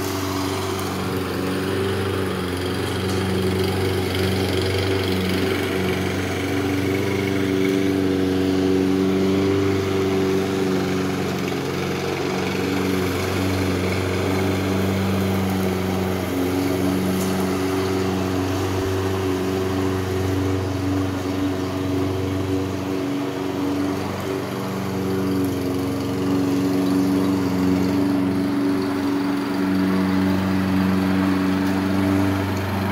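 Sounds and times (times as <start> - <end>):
push mower engine mowing grass: 0.0 - 32.9.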